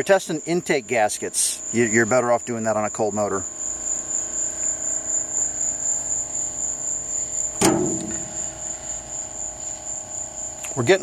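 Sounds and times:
crickets chirping: 0.0 - 11.0
steady low hum: 0.0 - 11.0
sharp knock: 7.6 - 8.7.

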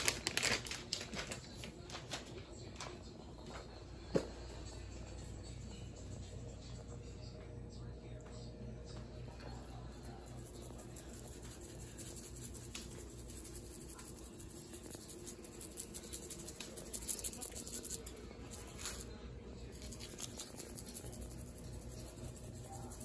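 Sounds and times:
low steady hum: 0.0 - 23.0
seasoning shaker rattling: 9.4 - 23.0.

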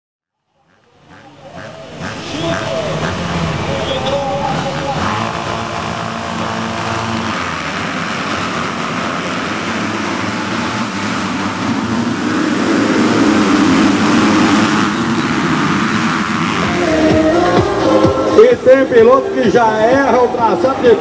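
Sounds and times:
motocross bikes revving: 0.6 - 21.0.

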